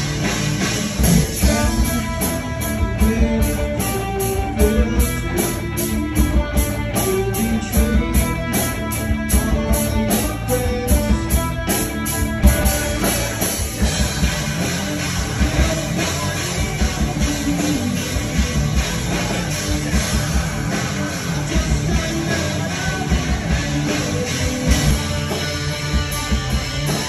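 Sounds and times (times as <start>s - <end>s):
bass guitar: 0.0s - 27.0s
distorted electric guitars: 0.0s - 27.0s
drum kit cymbals: 0.0s - 27.0s.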